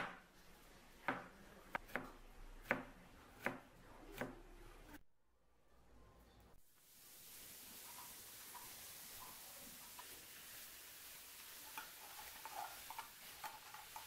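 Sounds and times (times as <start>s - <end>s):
knife chopping on cutting board: 1.0s - 3.6s.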